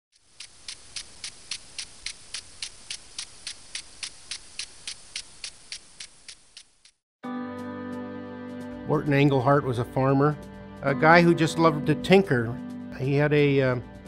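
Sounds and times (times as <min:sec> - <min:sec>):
impact sprinkler arm clicking: 0:00.1 - 0:07.0
water spray hissing: 0:00.1 - 0:07.0.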